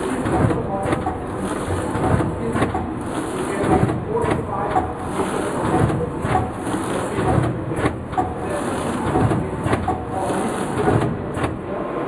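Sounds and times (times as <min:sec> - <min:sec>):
machine clattering: 0:00.0 - 0:11.6
sharp mechanical clacks: 0:00.0 - 0:11.6.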